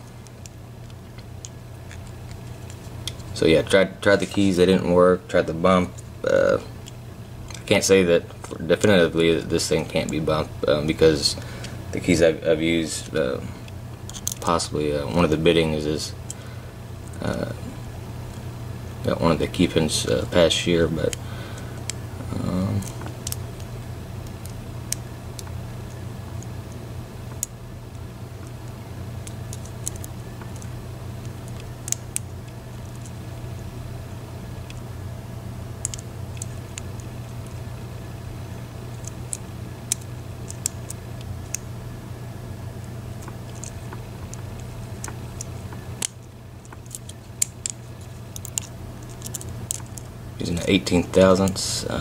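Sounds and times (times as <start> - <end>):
low steady hum: 0.0 - 52.0.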